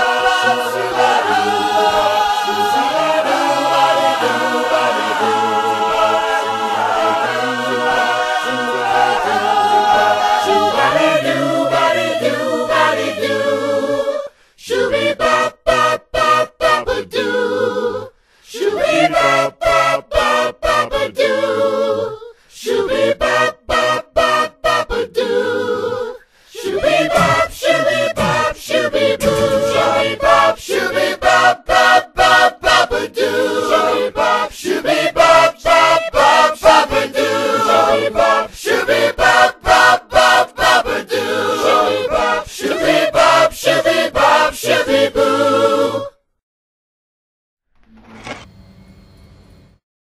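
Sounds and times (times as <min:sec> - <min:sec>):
a cappella scat singing in harmony: 0:00.0 - 0:46.3.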